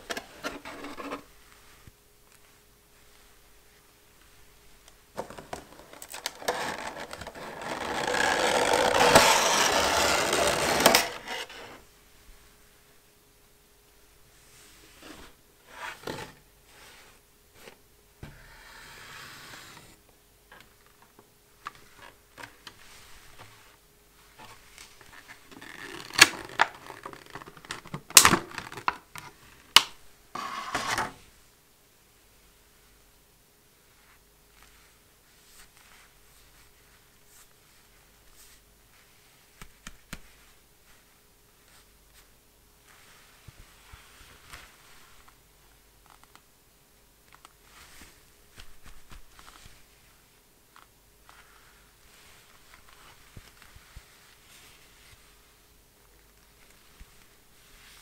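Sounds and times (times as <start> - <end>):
plastic scraping on cardboard: 0.1 - 1.3, 5.2 - 11.8
plastic crinkling: 5.2 - 11.4.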